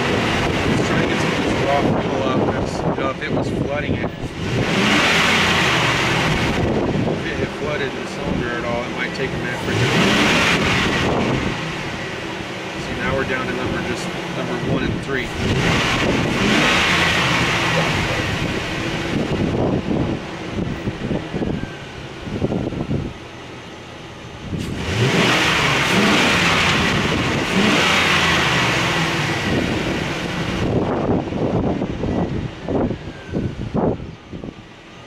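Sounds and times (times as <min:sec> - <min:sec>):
loud rushing noise: 0:00.0 - 0:23.4
engine running and misfiring: 0:00.0 - 0:35.0.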